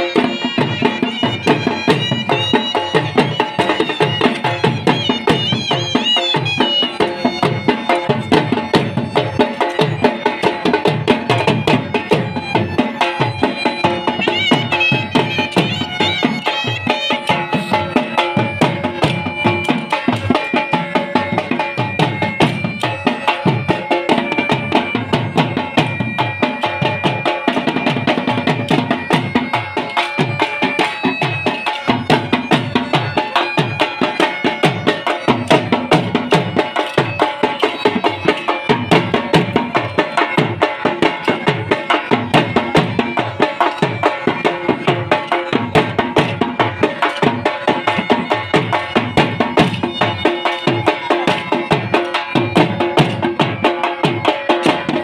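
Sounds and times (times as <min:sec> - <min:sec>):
bagpipe melody: 0:00.0 - 0:55.0
fast drumbeat: 0:00.0 - 0:55.0.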